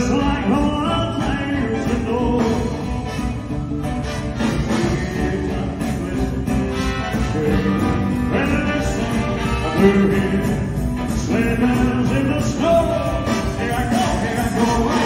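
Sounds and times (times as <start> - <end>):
drums: 0.0 - 15.0
person singing: 4.4 - 15.0.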